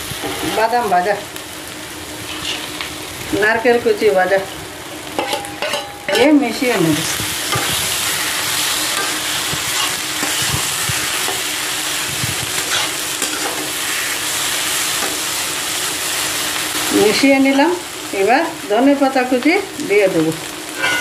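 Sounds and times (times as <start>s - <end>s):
filling sizzling in oil: 0.0s - 21.0s
steel spatula scraping: 2.3s - 2.7s, 5.2s - 6.4s, 7.4s - 11.5s, 12.2s - 14.2s, 20.8s - 21.0s.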